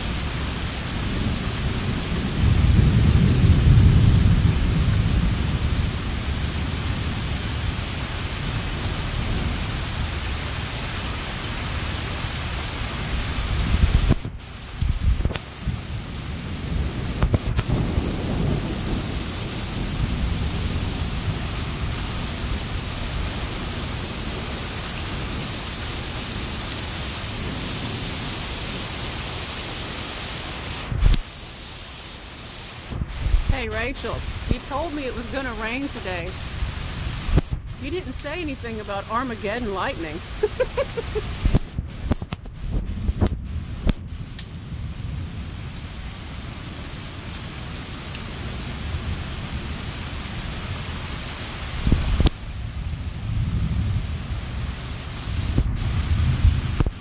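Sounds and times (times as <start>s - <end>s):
steady rain: 0.0s - 57.0s
rolling thunder: 0.9s - 10.2s, 13.1s - 25.5s, 51.7s - 57.0s.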